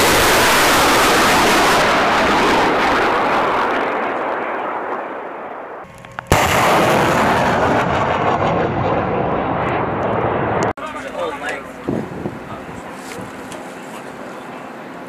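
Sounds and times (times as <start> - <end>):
rocket launch rushing noise: 0.0 - 5.6, 6.3 - 10.7
sharp rocket firing blast: 0.0 - 10.7.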